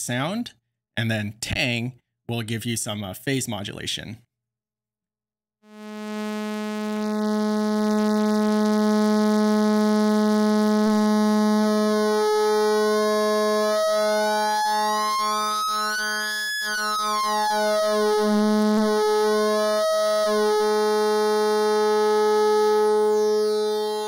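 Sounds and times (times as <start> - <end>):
buzzy synthesizer drone: 5.6 - 24.0
synthesizer filter sweep: 5.6 - 24.0.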